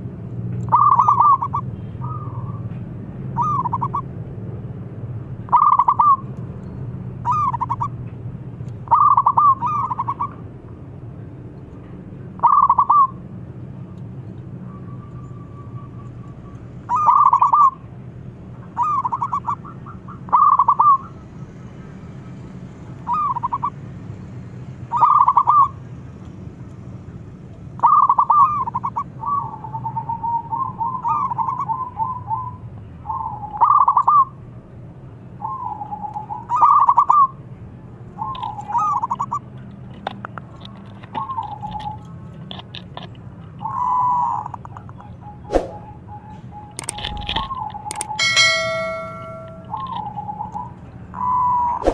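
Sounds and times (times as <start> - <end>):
dove cooing: 5.5 - 6.2, 18.8 - 21.1, 43.6 - 50.6
low steady hum: 44.4 - 50.8.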